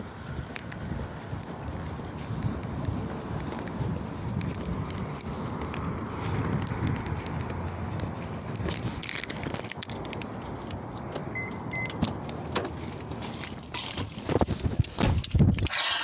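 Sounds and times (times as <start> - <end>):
keys jangling: 3.4 - 5.8.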